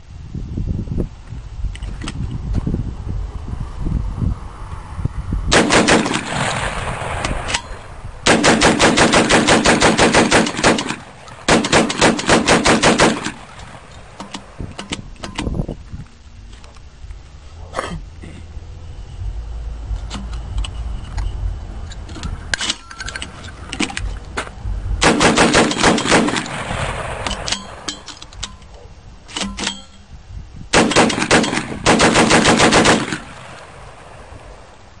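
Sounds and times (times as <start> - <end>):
shotgun rapid shots: 5.5 - 7.4, 8.3 - 13.6, 25.0 - 27.8, 30.7 - 33.6
gun handling clicks and knocks: 13.2 - 15.6, 20.0 - 24.6, 27.3 - 30.1.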